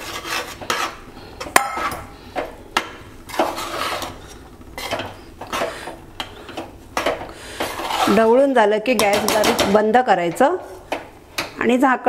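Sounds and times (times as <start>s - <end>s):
metal spoon scraping metal pot: 0.0s - 2.1s, 3.3s - 6.3s, 7.6s - 9.8s.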